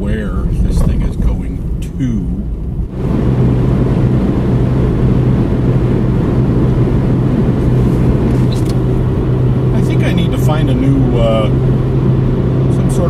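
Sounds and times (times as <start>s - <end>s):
car engine hum: 0.0s - 13.0s
tyre and road noise: 0.0s - 13.0s.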